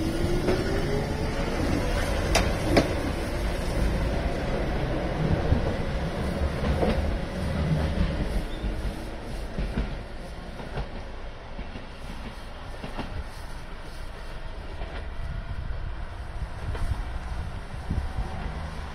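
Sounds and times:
train wheels rumbling over rails: 0:00.0 - 0:18.9
wheels clicking over rail joints: 0:01.8 - 0:03.2.

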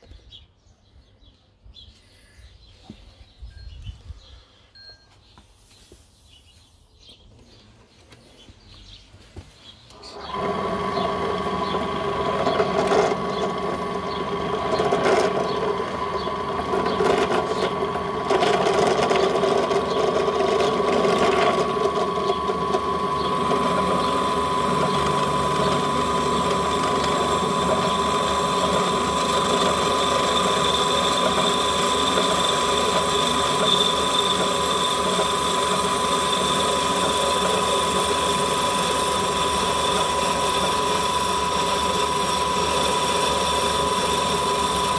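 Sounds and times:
drill motor whine: 0:09.9 - 0:44.9
drill bit cutting steel: 0:10.0 - 0:44.9.

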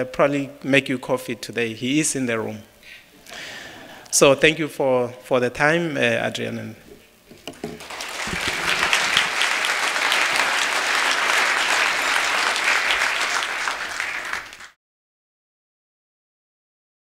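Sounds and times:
audience applauding: 0:07.6 - 0:14.8.

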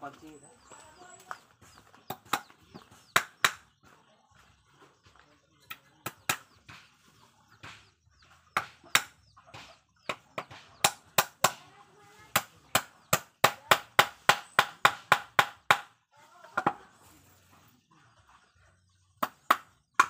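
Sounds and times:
hammer knocking on wood: 0:07.6 - 0:08.0, 0:08.6 - 0:11.6, 0:12.3 - 0:15.9.

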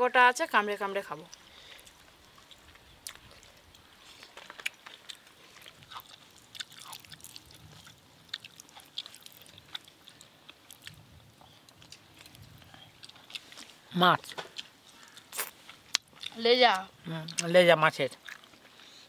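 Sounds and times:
chewing clicks and smacks: 0:01.3 - 0:11.0, 0:18.2 - 0:18.7.

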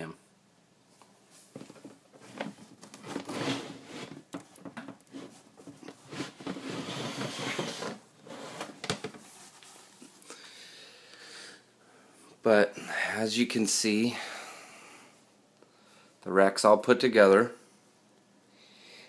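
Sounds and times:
plastic tub rustling and scraping: 0:01.4 - 0:10.0.

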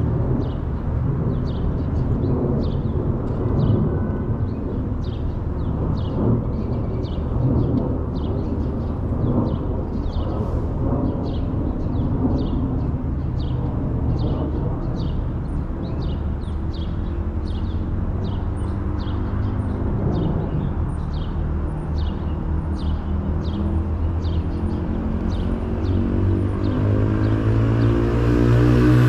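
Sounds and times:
city street traffic rumble: 0:00.0 - 0:29.0
vehicle engine hum: 0:00.0 - 0:29.0.

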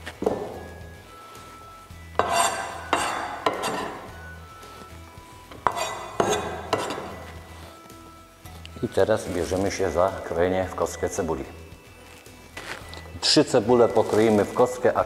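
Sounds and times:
knife clinking against metal bowl: 0:02.2 - 0:04.2, 0:05.6 - 0:07.4.

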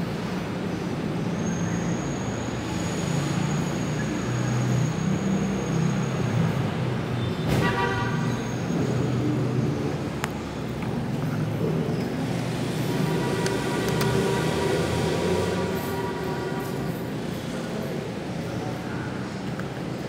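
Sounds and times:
road traffic rumble: 0:00.0 - 0:20.0
vehicle horn toot: 0:07.4 - 0:08.5, 0:12.9 - 0:17.0.

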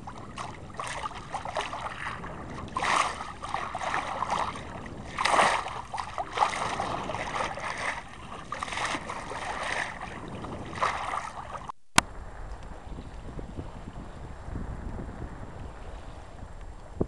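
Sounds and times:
water rushing along boat hull: 0:00.0 - 0:11.8.

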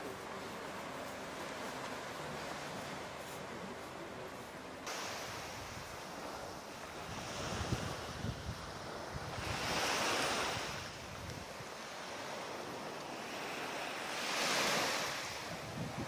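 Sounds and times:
waves washing on beach: 0:00.0 - 0:16.0
wind rumbling on microphone: 0:04.9 - 0:13.0, 0:14.3 - 0:16.0.

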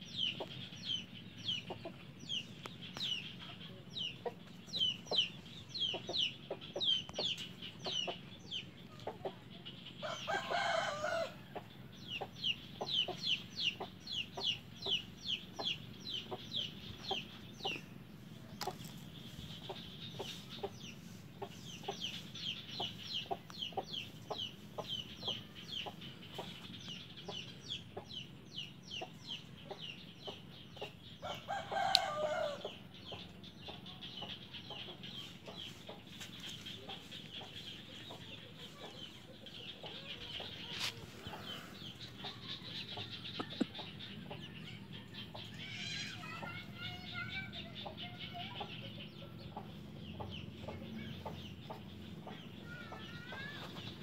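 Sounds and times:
chickens peeping: 0:00.0 - 0:54.0
soft low clucks: 0:39.8 - 0:44.6.

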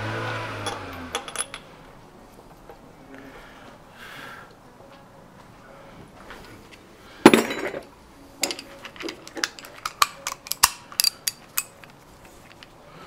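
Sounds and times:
metal tools clinking: 0:00.6 - 0:01.7, 0:07.2 - 0:12.7
metal tools clattering: 0:00.7 - 0:01.7, 0:07.2 - 0:12.7.

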